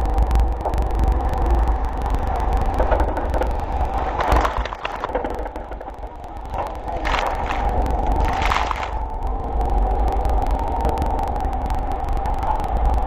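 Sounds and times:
low rumble of wind and engine: 0.0s - 13.0s
rushing crackling water and spray: 2.4s - 9.2s
breaking water surge: 3.6s - 9.1s.

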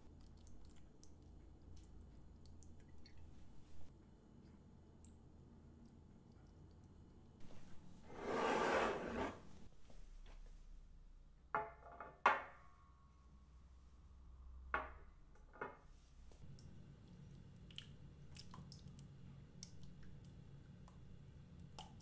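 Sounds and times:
low steady hum: 12.6s - 22.0s.

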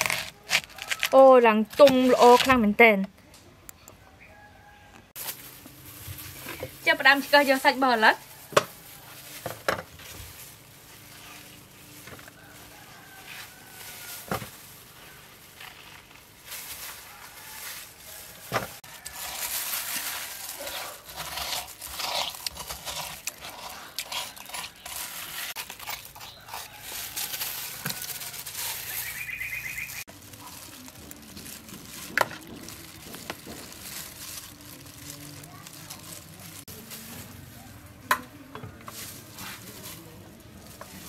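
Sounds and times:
spoon scraping watermelon flesh: 18.9s - 29.3s.

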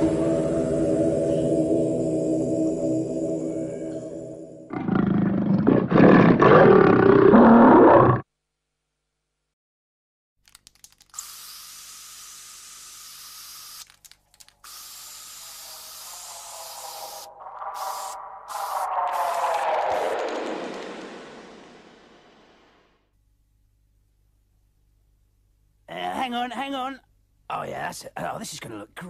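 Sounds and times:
gorilla roar: 4.7s - 8.2s, 16.4s - 21.0s
steady hiss: 14.5s - 20.2s.

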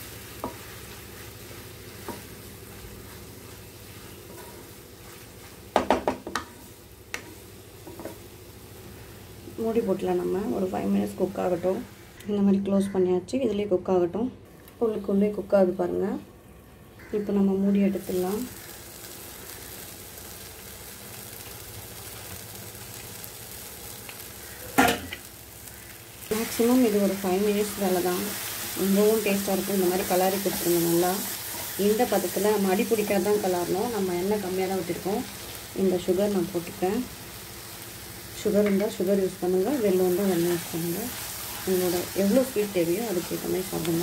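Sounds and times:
mango sizzling in a pan: 0.0s - 12.5s, 14.5s - 44.0s
spatula knocking and scraping pan: 0.4s - 0.9s, 1.5s - 8.2s.

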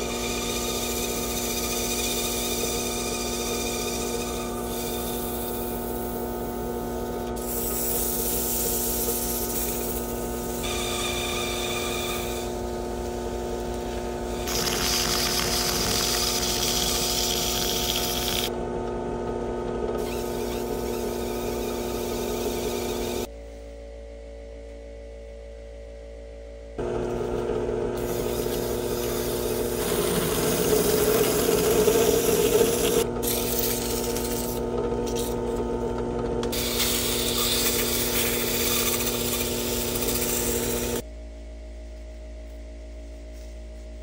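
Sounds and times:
power tool motor hum: 7.2s - 18.5s, 19.9s - 23.3s, 26.8s - 41.0s.

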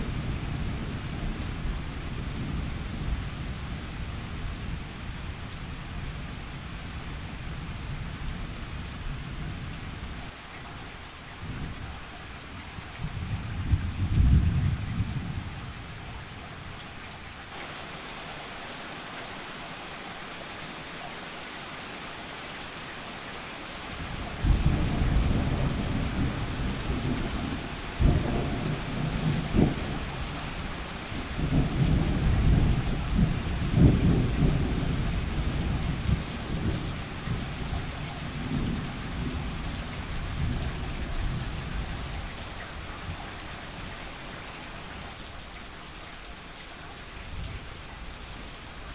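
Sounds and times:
steady rain falling: 0.0s - 48.9s
thunder rumbling and cracking: 13.0s - 15.6s, 24.2s - 30.6s, 31.2s - 42.3s.

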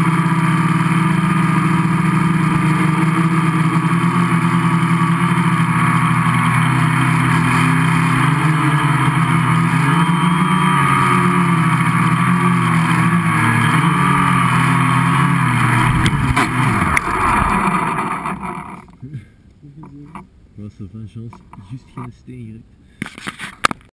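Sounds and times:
quadcopter motors buzzing: 0.0s - 19.0s
drone landing knocks: 15.0s - 19.0s.

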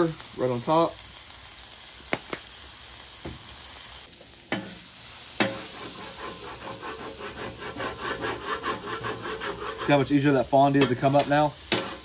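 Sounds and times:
vegetables sizzling on a griddle: 0.0s - 12.0s
metal spatula scraping griddle: 4.5s - 12.0s.

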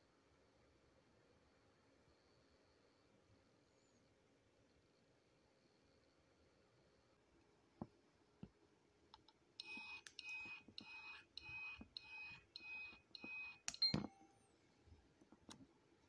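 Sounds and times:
short electronic beeps: 9.6s - 14.4s
sharp click: 13.2s - 14.1s.

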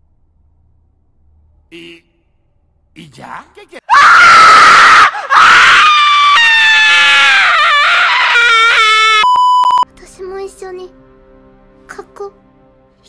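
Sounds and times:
shrill scream: 3.9s - 9.3s
high electronic beep: 9.2s - 9.8s.

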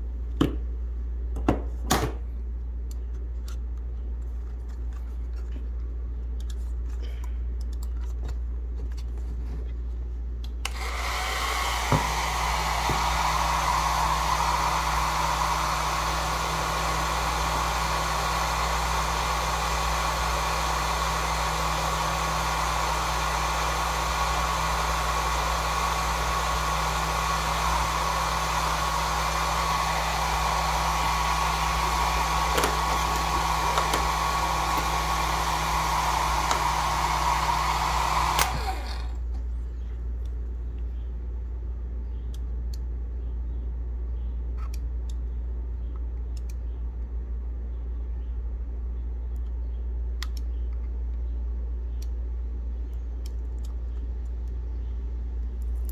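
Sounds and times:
hair dryer blowing with whine: 10.7s - 39.2s.

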